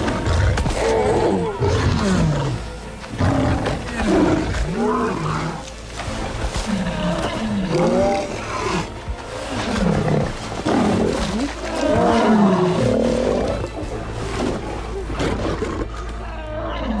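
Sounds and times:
lions snarling and roaring: 0.0 - 17.0.

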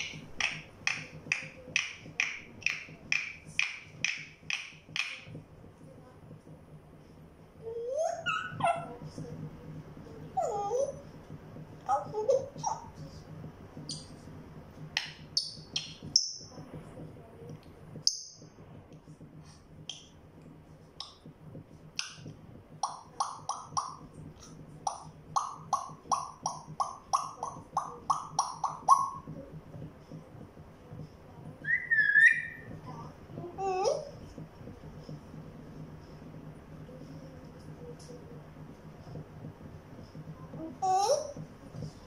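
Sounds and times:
parrot chirps and clicks: 0.0 - 5.4, 13.8 - 14.2, 14.9 - 16.5, 17.5 - 18.5, 19.9 - 20.2, 21.0 - 21.3, 22.0 - 29.5, 31.6 - 32.8
parrot rising whistle: 31.6 - 32.7.

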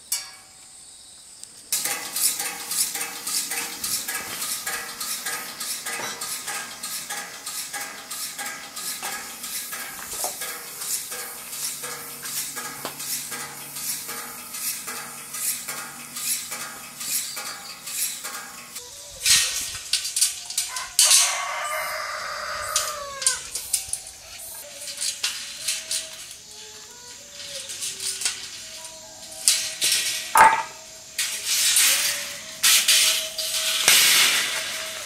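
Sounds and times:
threshing drum rattling: 1.8 - 18.8, 29.4 - 35.0
steel scraping squeal: 1.8 - 35.0
loud metal knocks: 30.3 - 30.8.

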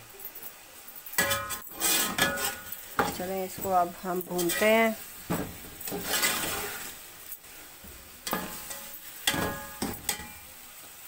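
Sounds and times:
low sizzle of frying: 0.0 - 11.0
metal spoon scraping a pot: 1.2 - 4.9, 5.8 - 6.9.

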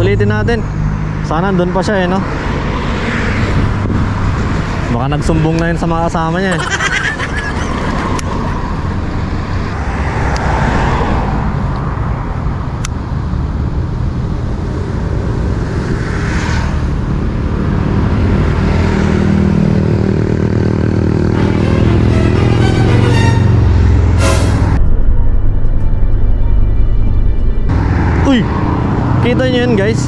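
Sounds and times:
road traffic rumble: 0.0 - 30.0
vehicles passing: 0.0 - 30.0
heavy engine: 7.3 - 30.0.

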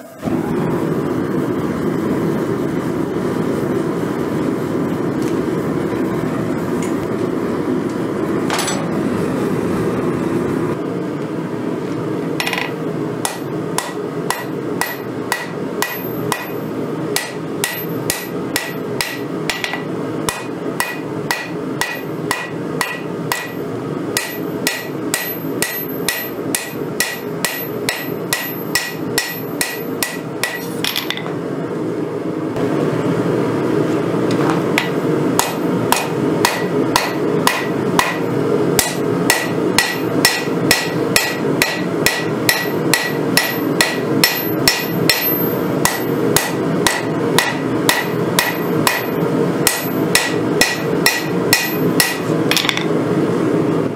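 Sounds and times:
hammer striking ringing anvil: 12.4 - 16.6, 17.2 - 23.6, 24.2 - 31.3, 34.8 - 52.9.

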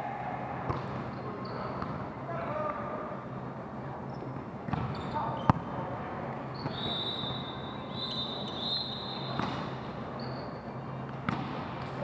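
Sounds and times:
sneakers squeaking on court: 4.1 - 5.7, 6.5 - 7.0, 8.4 - 11.6.

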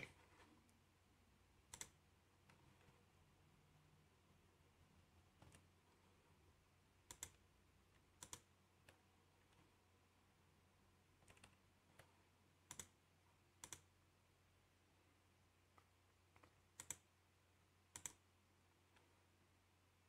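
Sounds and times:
computer mouse clicks: 1.7 - 3.0, 5.4 - 5.7, 7.1 - 7.4, 8.2 - 9.7, 11.2 - 13.0, 13.6 - 13.9, 15.7 - 17.1, 17.9 - 18.2.

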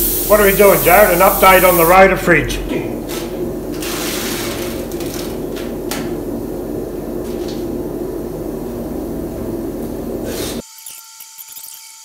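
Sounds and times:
steady low hum: 0.0 - 10.6
tape tearing and rustling: 3.1 - 5.7.

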